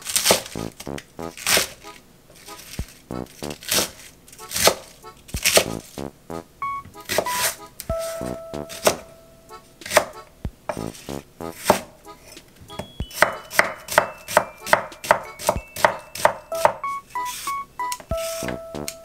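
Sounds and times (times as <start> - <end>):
soft background music: 0.4 - 19.0
knife chopping on wooden board: 11.6 - 11.9.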